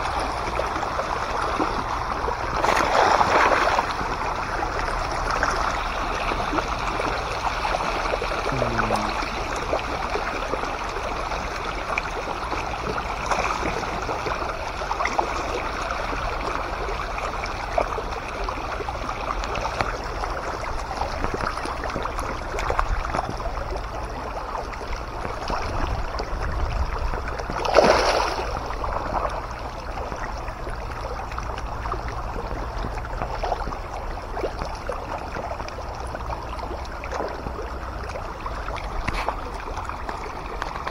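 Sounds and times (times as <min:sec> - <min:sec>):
fish splashing at water surface: 0:00.0 - 0:40.9
loud splash: 0:02.6 - 0:04.0, 0:27.6 - 0:28.8.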